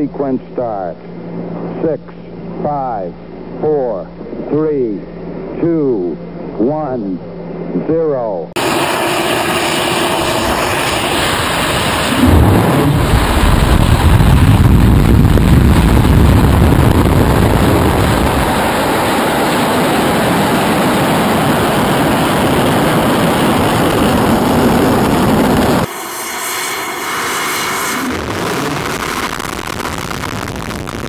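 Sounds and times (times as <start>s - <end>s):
rocket engine roaring: 8.6s - 31.0s.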